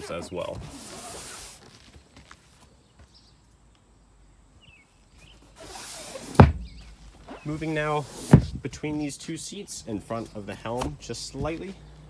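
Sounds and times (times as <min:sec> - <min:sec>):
storage lid thumping shut: 0:06.3 - 0:06.9.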